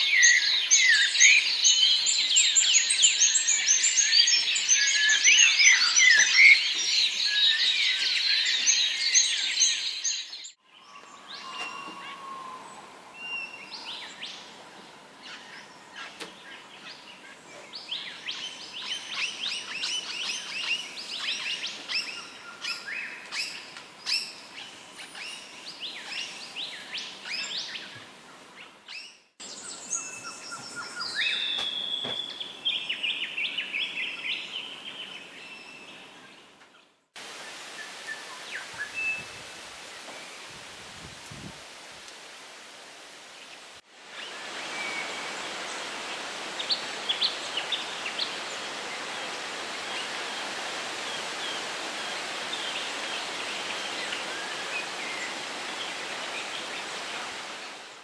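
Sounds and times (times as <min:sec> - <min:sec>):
birds singing and calling: 0:00.0 - 0:14.5, 0:15.2 - 0:28.0, 0:28.6 - 0:36.9.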